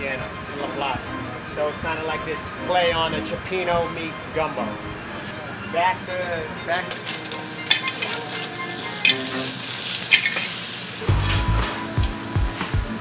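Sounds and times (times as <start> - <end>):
butter sizzling in a pan: 6.9 - 12.3.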